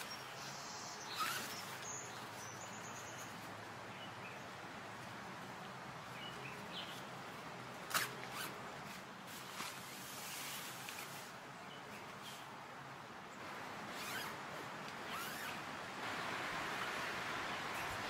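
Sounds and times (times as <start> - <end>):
bird chirping: 0.0 - 4.4
outdoor background noise: 0.0 - 18.0
scrapes or rustles: 7.9 - 11.4.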